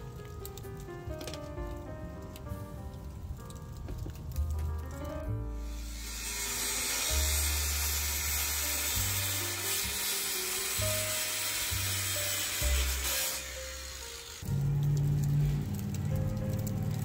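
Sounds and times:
background music: 0:00.0 - 0:17.0
circular saw cutting plastic pipe: 0:05.6 - 0:14.5.

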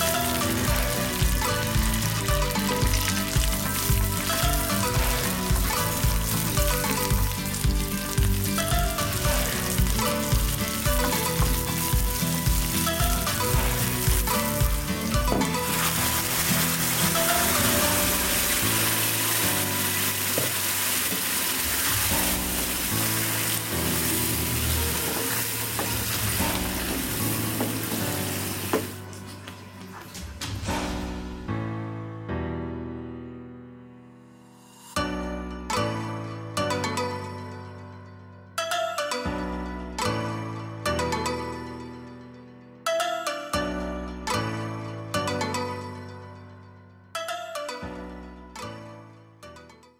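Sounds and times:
shallots sizzling in hot oil: 0:00.0 - 0:29.1
music with deep beat: 0:00.1 - 0:15.7
wooden spatula stirring: 0:02.9 - 0:30.1.

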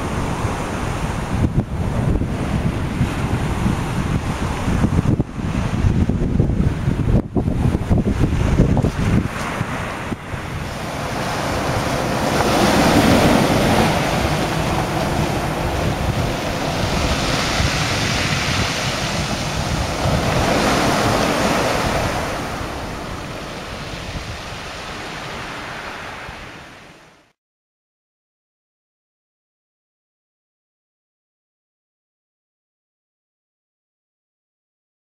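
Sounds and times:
wind noise on microphone: 0:00.0 - 0:27.2
waves breaking on shingle beach: 0:08.2 - 0:26.7.

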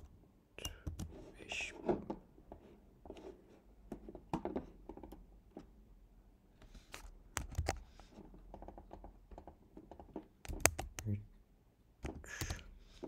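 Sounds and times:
keyboard key clicks: 0:10.4 - 0:11.1.

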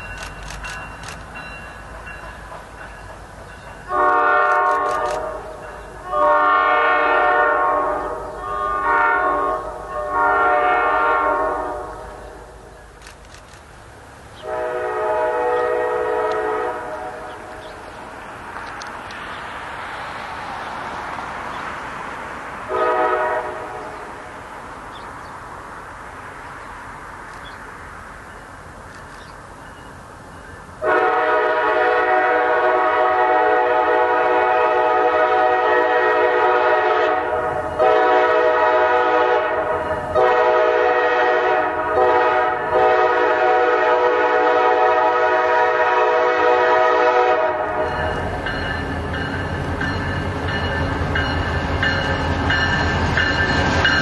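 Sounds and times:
train wheels: 0:00.0 - 0:54.0
train horn blasts: 0:03.9 - 0:12.5, 0:14.4 - 0:17.6, 0:22.7 - 0:24.1, 0:30.8 - 0:50.0.

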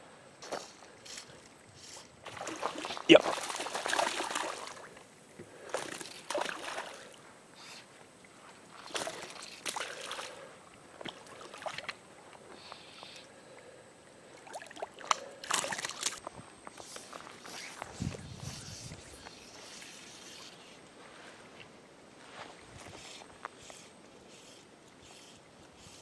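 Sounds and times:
fish splashing at water surface: 0:02.2 - 0:04.9.

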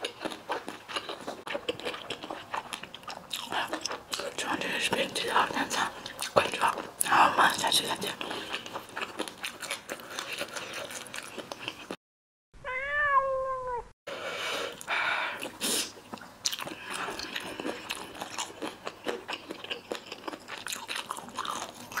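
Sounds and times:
close-up chewing with crunches: 0:00.0 - 0:12.0, 0:15.4 - 0:22.0
cat meowing: 0:12.6 - 0:13.9.

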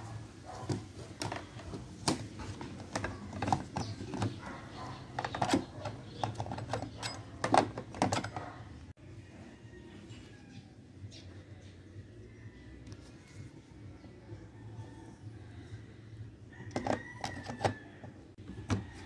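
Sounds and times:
plastic and metal clicks and knocks: 0:00.7 - 0:08.6, 0:16.7 - 0:17.8.

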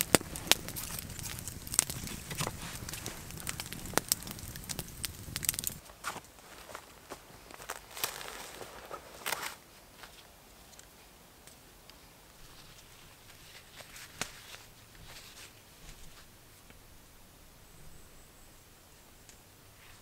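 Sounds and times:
footsteps on forest floor: 0:05.8 - 0:10.3
faint rustling of clothing: 0:05.8 - 0:17.0, 0:19.7 - 0:20.0.

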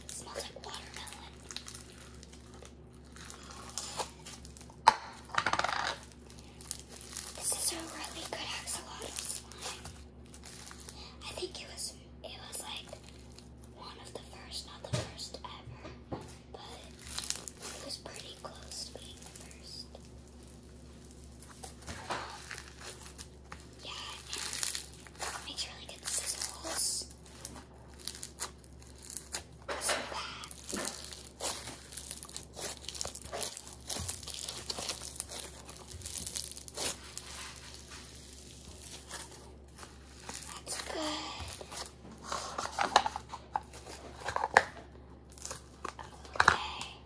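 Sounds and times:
hands squishing slime: 0:06.0 - 0:11.0, 0:16.6 - 0:44.4
slime squished by hand: 0:30.4 - 0:42.0.

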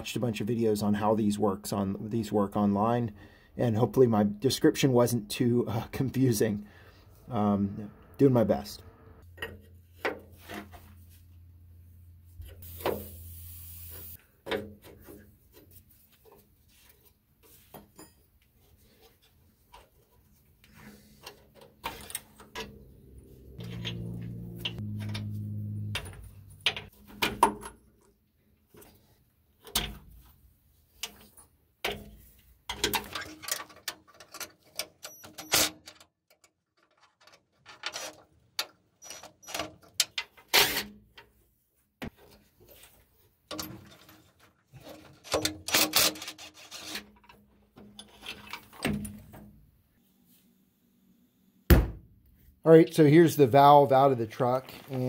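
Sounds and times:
metallic clicks and clanks: 0:21.2 - 0:28.1, 0:31.0 - 0:41.3.

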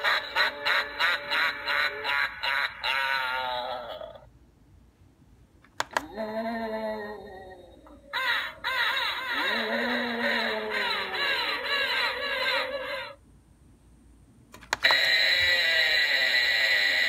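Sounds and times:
sharp click: 0:05.6 - 0:06.1, 0:14.5 - 0:15.0
spooky sound effect through small speaker: 0:14.8 - 0:17.0.

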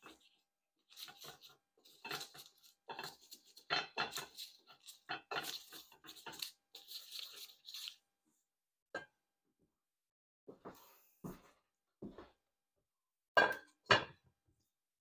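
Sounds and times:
pans and utensils clattering: 0:01.0 - 0:06.4.

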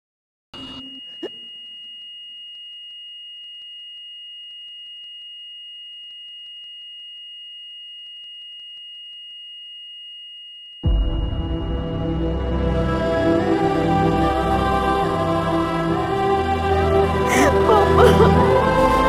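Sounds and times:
heart monitor flatline tone: 0:00.6 - 0:11.2.

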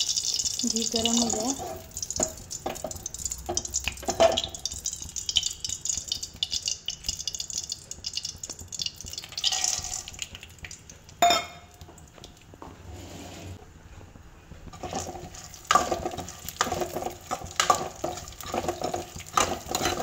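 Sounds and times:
hot fat crackling and spitting: 0:00.0 - 0:12.6, 0:14.7 - 0:20.0
nuts clattering into metal pan: 0:14.8 - 0:20.0.

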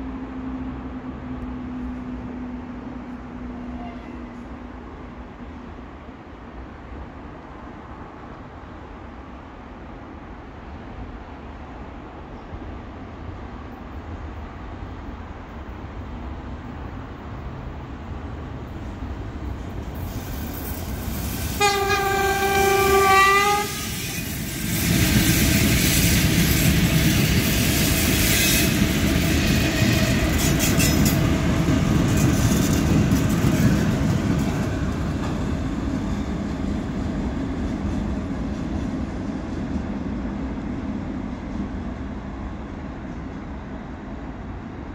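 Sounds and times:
train wheels rumbling: 0:00.0 - 0:44.9
locomotive horn blast: 0:21.5 - 0:24.3.

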